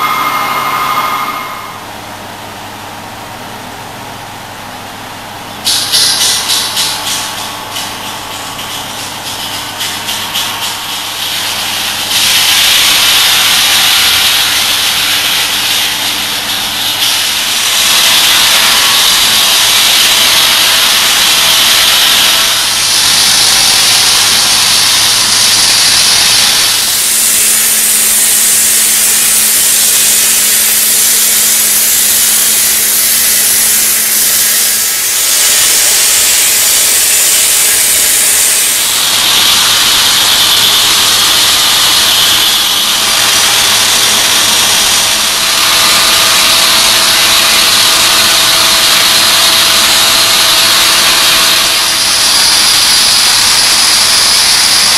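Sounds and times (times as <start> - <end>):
machine engine hum: 0.0 - 5.7
saw grinding concrete: 6.0 - 54.9.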